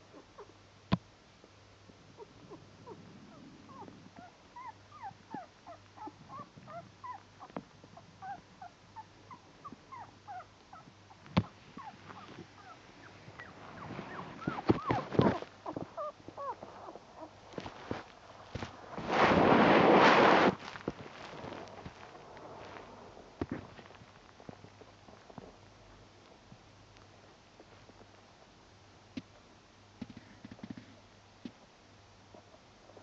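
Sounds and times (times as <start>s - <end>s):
puppies squeaking and whimpering: 3.3s - 7.5s, 9.0s - 10.9s, 11.8s - 17.3s.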